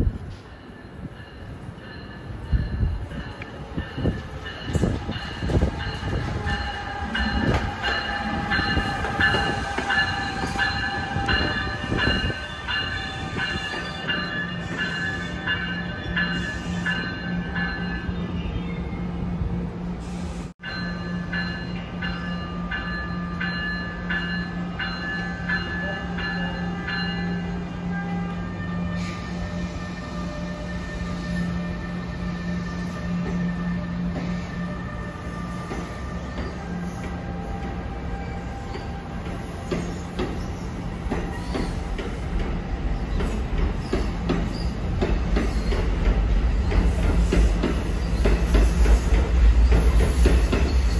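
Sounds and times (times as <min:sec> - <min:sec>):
low hum from train: 0:00.0 - 0:50.9
locomotive bell ringing: 0:00.4 - 0:19.0, 0:20.6 - 0:42.0.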